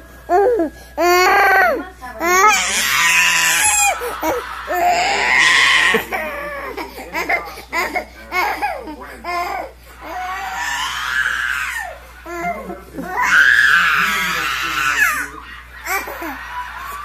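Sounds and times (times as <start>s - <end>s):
toddler crying and wailing: 0.3s - 4.0s, 4.8s - 12.5s, 13.1s - 15.3s.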